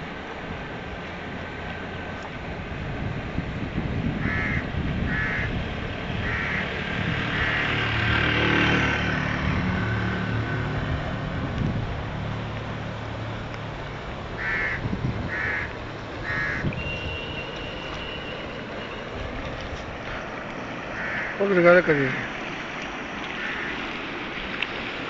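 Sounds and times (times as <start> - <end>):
water rushing in canal: 0.0 - 25.0
crow cawing: 4.2 - 5.5, 6.2 - 6.7, 7.4 - 7.8, 14.4 - 16.7, 21.0 - 22.3, 23.4 - 23.8
motorcycle passing by: 4.2 - 22.2.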